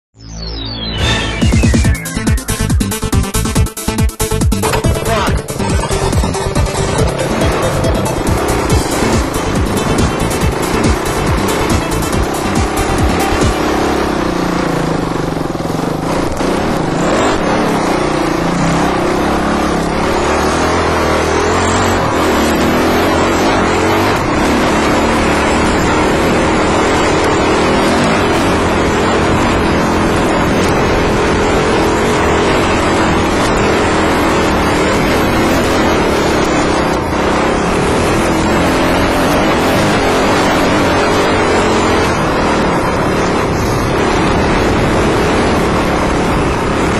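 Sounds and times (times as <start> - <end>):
dirt bike engine: 0.2 - 46.9.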